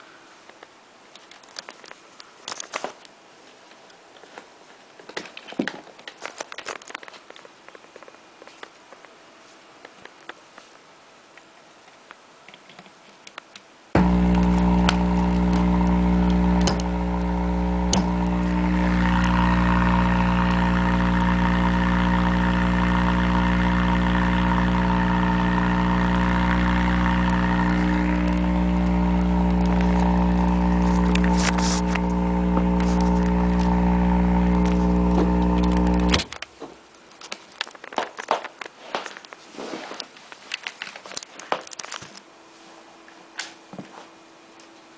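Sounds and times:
buzzing speaker power hum: 0:14.0 - 0:36.4.

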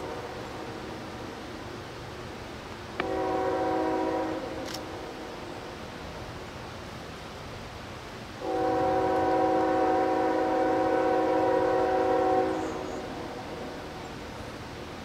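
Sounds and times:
locomotive air horn blast: 0:00.0 - 0:00.8, 0:03.0 - 0:05.0, 0:08.4 - 0:13.9.

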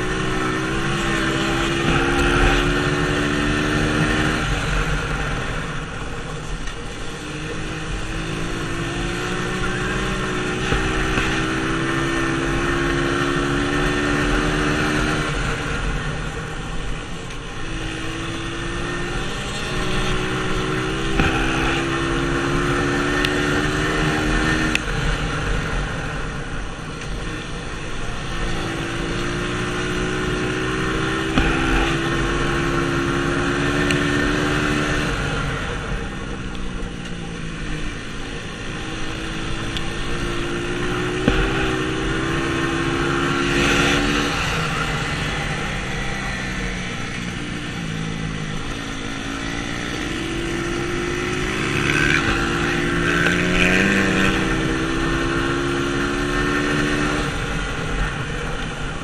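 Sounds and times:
dirt bike engine revving: 0:00.0 - 0:04.7, 0:07.8 - 0:15.6, 0:17.7 - 0:24.9, 0:28.2 - 0:35.4, 0:38.8 - 0:57.8.

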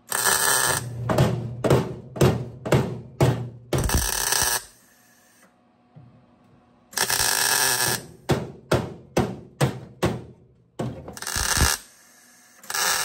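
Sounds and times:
welding bursts: 0:00.0 - 0:01.0, 0:03.8 - 0:05.4, 0:07.0 - 0:08.2, 0:11.2 - 0:13.0.

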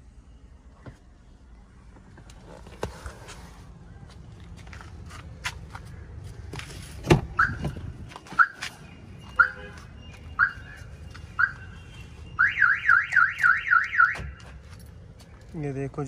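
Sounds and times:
car alarm chirps and siren: 0:07.4 - 0:08.6, 0:09.2 - 0:14.4.

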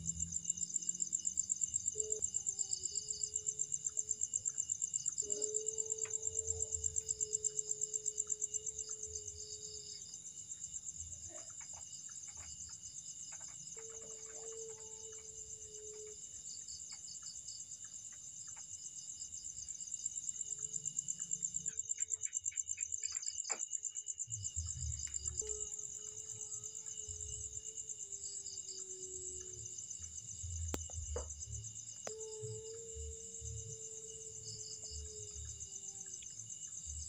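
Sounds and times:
faint low moaning tone: 0:00.0 - 0:01.2, 0:24.3 - 0:37.0
crickets and insects trilling: 0:00.0 - 0:37.0.

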